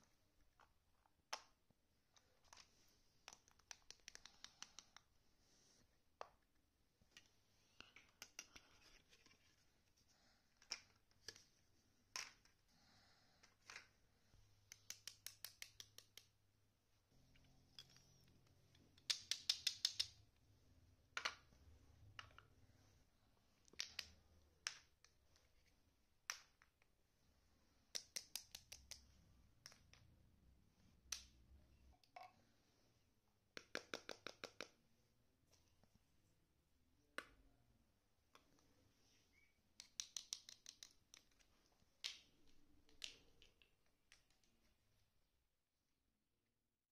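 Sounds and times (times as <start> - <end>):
plastic toy pieces clicking on wood: 14.7 - 16.3, 19.0 - 20.2, 27.9 - 29.0, 39.8 - 41.4.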